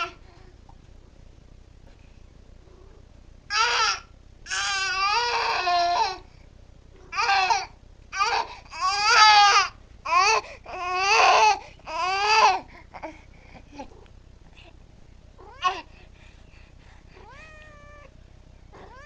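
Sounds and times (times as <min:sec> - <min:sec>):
infant crying: 0:03.5 - 0:06.2, 0:07.1 - 0:13.2, 0:15.4 - 0:15.9.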